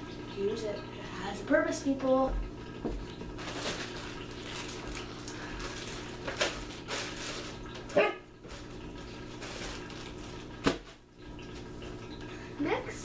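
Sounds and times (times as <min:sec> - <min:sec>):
plastic bag crinkling: 0:03.4 - 0:07.9, 0:08.5 - 0:10.7
puppy barking: 0:07.9 - 0:08.3.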